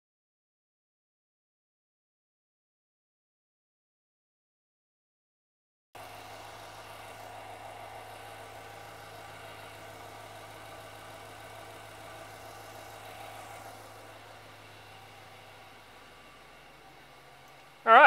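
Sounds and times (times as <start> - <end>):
car engine idling: 6.0 - 18.0.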